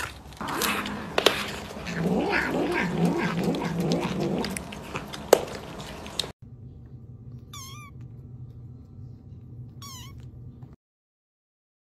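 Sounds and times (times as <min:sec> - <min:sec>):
cat chewing food: 0:00.0 - 0:10.8
kitten mewing: 0:00.4 - 0:05.1, 0:07.4 - 0:08.1, 0:09.8 - 0:10.3.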